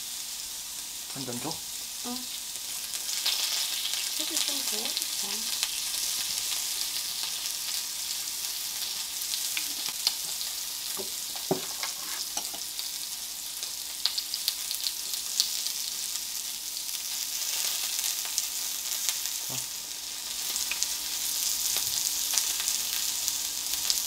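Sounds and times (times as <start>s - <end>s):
meat sizzling on a grill plate: 0.0s - 24.0s
small knock: 11.0s - 11.7s.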